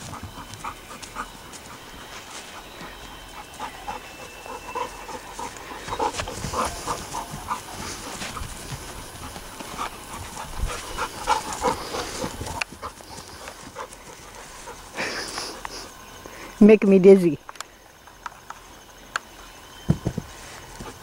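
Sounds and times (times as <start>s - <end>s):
dog panting: 0.0s - 16.0s.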